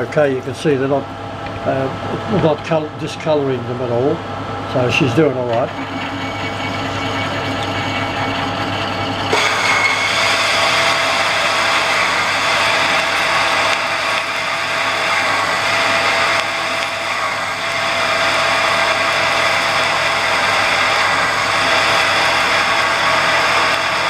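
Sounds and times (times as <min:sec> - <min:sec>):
metal lathe drilling steel: 0:05.0 - 0:24.0.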